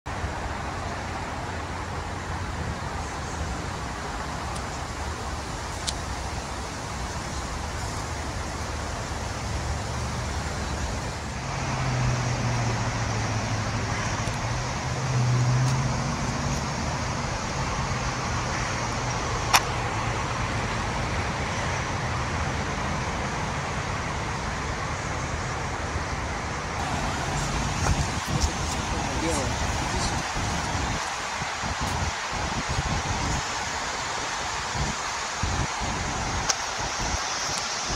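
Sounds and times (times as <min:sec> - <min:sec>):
low engine hum: 0:00.1 - 0:33.4
road traffic rumble: 0:00.1 - 0:37.9
sharp click: 0:19.5 - 0:19.7.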